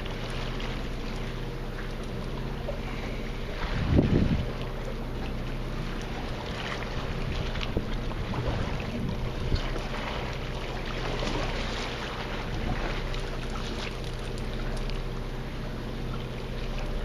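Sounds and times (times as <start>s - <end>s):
boat machinery hum: 0.0s - 17.0s
wind on microphone: 3.5s - 4.6s, 7.0s - 9.8s.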